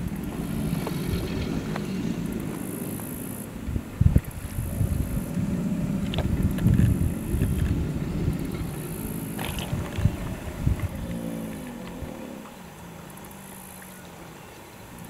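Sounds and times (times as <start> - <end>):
alligators bellowing: 0.0 - 15.0.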